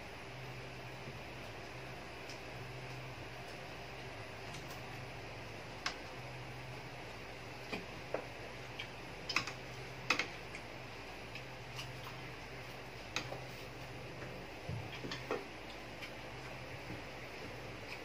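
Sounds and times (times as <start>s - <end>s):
chewing crunchy food: 8.7s - 16.6s.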